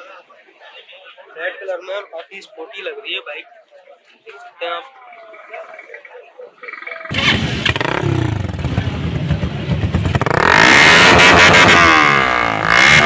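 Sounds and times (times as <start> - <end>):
motorcycle engine revving: 7.1 - 13.0.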